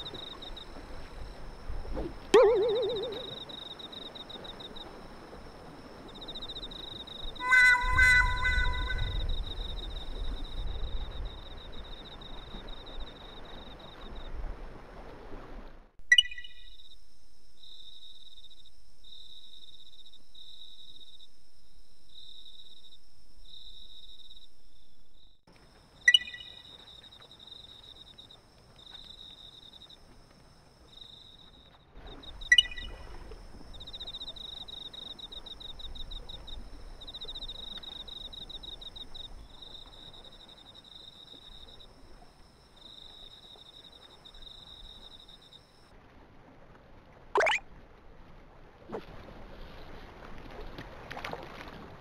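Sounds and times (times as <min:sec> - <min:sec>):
crickets chirping: 0:00.0 - 0:14.6, 0:16.1 - 0:45.9
faint high steady tone: 0:02.4 - 0:04.0, 0:05.6 - 0:10.4, 0:16.1 - 0:25.4, 0:32.5 - 0:33.2, 0:47.4 - 0:47.6.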